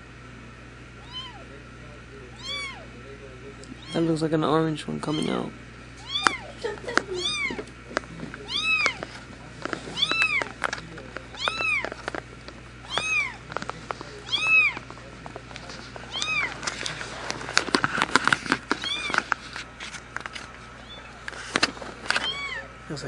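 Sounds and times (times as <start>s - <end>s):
kitten mewing: 1.0s - 1.5s, 2.3s - 2.9s, 3.6s - 4.2s, 5.1s - 7.7s, 8.4s - 9.1s, 9.9s - 10.6s, 11.4s - 12.0s, 12.8s - 13.5s, 14.2s - 14.9s, 16.1s - 16.6s, 18.8s - 19.3s, 22.2s - 22.7s
rustling and handling noise: 5.2s - 22.5s.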